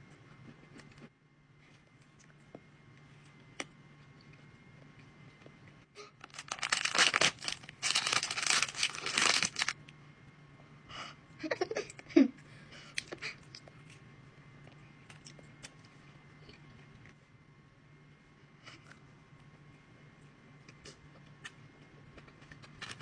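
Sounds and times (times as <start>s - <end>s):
plastic wrapper crinkling and tearing: 6.2s - 9.8s.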